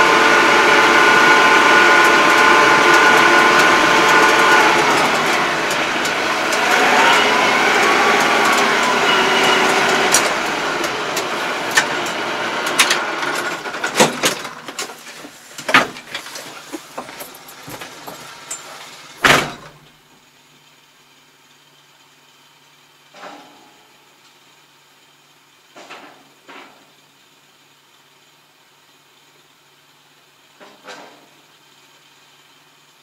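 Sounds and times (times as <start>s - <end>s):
tractor engine clattering: 0.0s - 19.8s.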